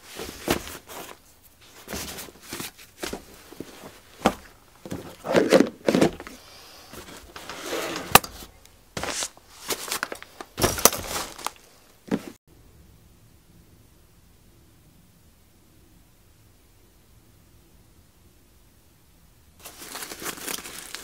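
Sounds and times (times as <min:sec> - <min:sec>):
cloth pouches rustling: 0:00.0 - 0:12.4, 0:19.6 - 0:21.0.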